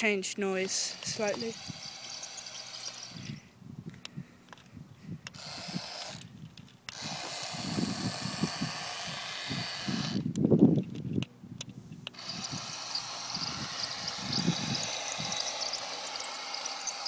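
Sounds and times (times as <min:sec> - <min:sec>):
electric motors whining: 0:00.6 - 0:03.4, 0:05.3 - 0:06.3, 0:06.9 - 0:10.3, 0:12.1 - 0:17.0.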